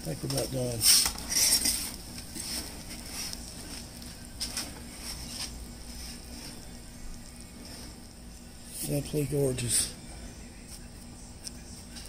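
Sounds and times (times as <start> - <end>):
gas burner rumbling: 0.0 - 12.0
metal peel scraping: 0.7 - 6.8.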